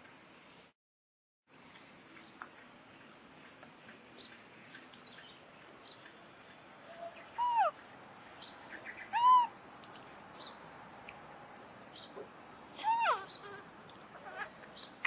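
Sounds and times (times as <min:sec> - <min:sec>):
faint chirps: 0:05.9 - 0:07.8
baby monkey high calls: 0:06.9 - 0:07.8, 0:09.1 - 0:09.6, 0:12.8 - 0:14.6.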